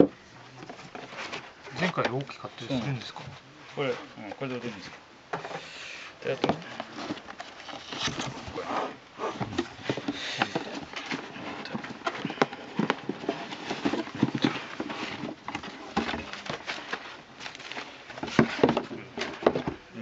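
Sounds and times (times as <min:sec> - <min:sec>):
foam and cardboard scraping: 0:00.7 - 0:19.7
plastic wrap rustling: 0:06.2 - 0:19.6.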